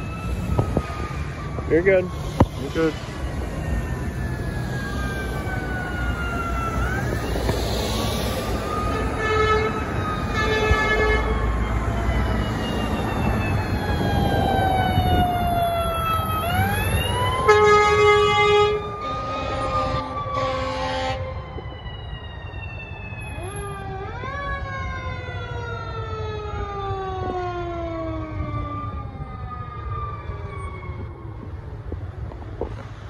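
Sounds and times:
siren quick rising sweeps: 0.0 - 31.4
emergency vehicle sirens wailing: 0.0 - 33.0
vehicle horn blasts: 17.5 - 21.2.

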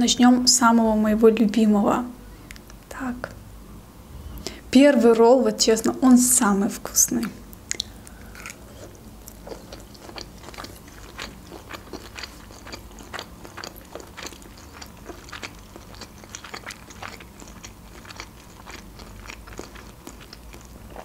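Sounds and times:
person chewing food: 7.6 - 21.0.

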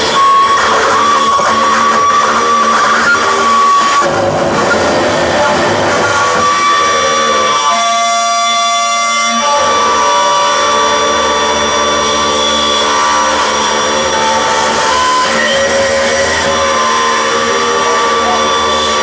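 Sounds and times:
electronic noise music: 0.0 - 19.0.

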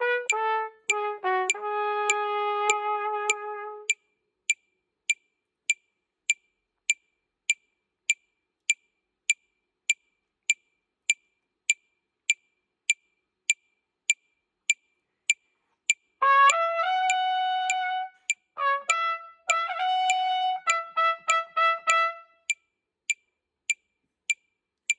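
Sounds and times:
trumpet notes: 0.0 - 3.9, 16.2 - 22.5
metronome clicking: 0.0 - 24.9.

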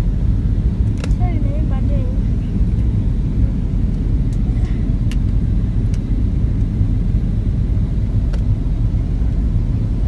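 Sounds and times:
airliner cabin rumble: 0.0 - 10.0.

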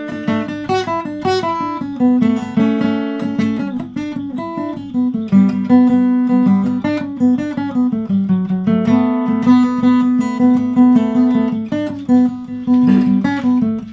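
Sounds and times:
acoustic guitar chords: 0.0 - 13.9.

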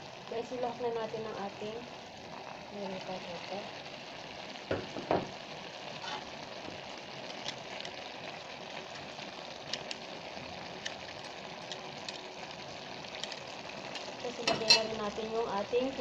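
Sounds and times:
food sizzling in a wok: 0.0 - 16.0
metal spatula clicking on pan: 14.0 - 15.0.

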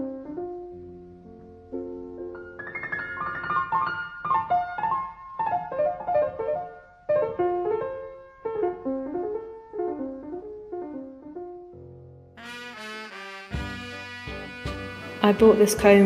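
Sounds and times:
piano music: 0.0 - 16.0.

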